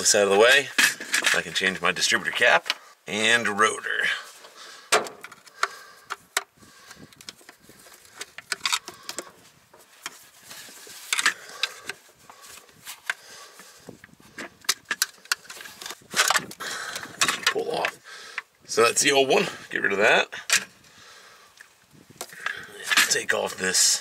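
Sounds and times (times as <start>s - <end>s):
screwdriver clicking and scraping: 5.1s - 9.4s, 10.0s - 12.0s, 14.0s - 18.5s.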